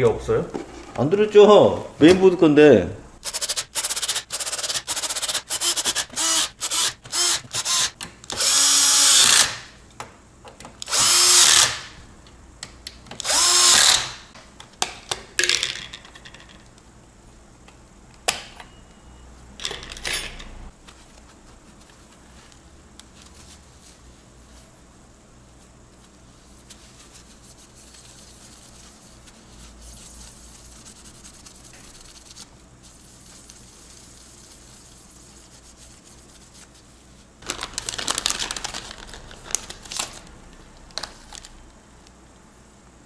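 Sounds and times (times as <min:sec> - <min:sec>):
cordless drill driving screws: 0:03.5 - 0:09.5, 0:10.9 - 0:11.8, 0:13.2 - 0:14.1.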